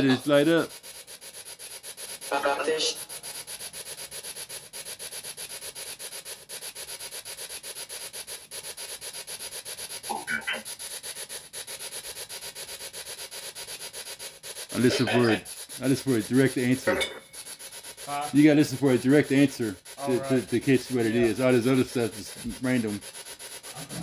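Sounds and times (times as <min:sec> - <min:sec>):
pulsing scratchy radio static: 0:00.0 - 0:01.0, 0:02.0 - 0:03.9, 0:09.8 - 0:11.1, 0:14.6 - 0:24.0.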